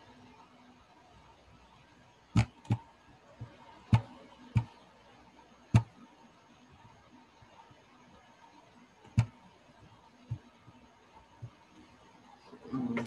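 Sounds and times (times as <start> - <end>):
computer mouse clicks: 2.4 - 2.8, 5.7 - 6.0.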